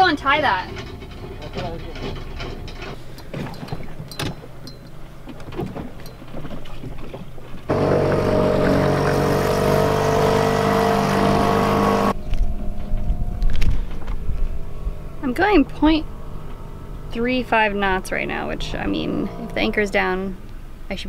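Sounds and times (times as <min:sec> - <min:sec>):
boat motor running: 0:04.5 - 0:12.2, 0:14.7 - 0:20.2.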